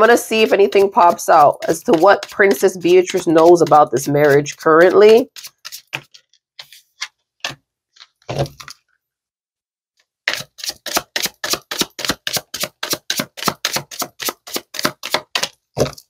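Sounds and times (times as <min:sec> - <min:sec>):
cards slapping while shuffled: 0:05.4 - 0:08.8, 0:10.3 - 0:16.0.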